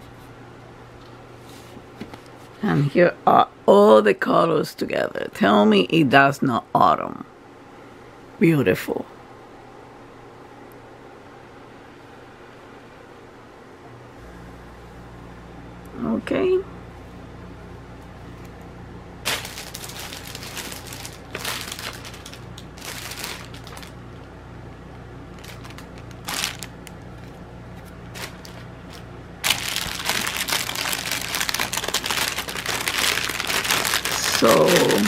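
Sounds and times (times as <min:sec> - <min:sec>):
packaging rustling: 0:19.2 - 0:24.3, 0:25.3 - 0:35.0
plastic bag crinkling: 0:19.2 - 0:24.3, 0:25.3 - 0:35.0.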